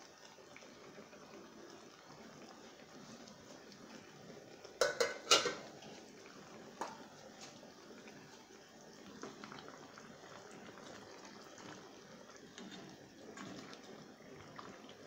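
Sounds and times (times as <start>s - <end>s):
stew simmering in a pan: 0.0s - 15.0s
metal utensils clinking: 4.8s - 5.6s.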